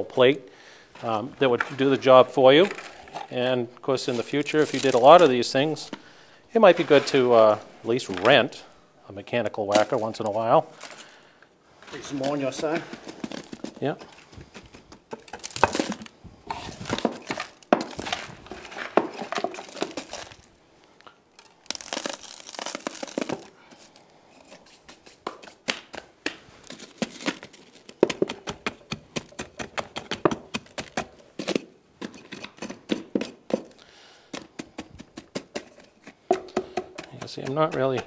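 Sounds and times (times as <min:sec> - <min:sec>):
gritty scraping of fill: 0:00.9 - 0:38.0
wood block tapping soil: 0:24.9 - 0:26.4, 0:28.0 - 0:33.7, 0:34.3 - 0:38.0.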